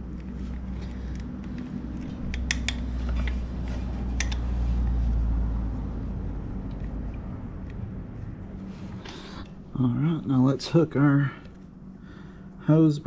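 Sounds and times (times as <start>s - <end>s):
metallic clicks of hand tools: 1.1s - 3.4s, 4.2s - 4.4s.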